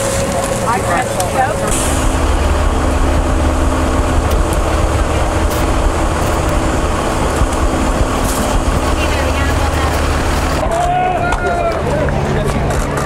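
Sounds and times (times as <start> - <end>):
motor running: 0.3 - 10.6.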